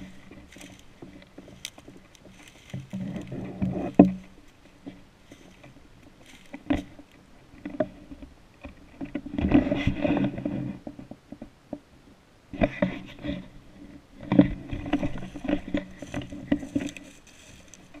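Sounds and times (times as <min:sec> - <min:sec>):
footsteps crunching dry leaves: 0:00.0 - 0:03.6, 0:05.2 - 0:06.9, 0:15.0 - 0:18.0
brushing past twigs: 0:00.0 - 0:07.2, 0:12.7 - 0:18.0.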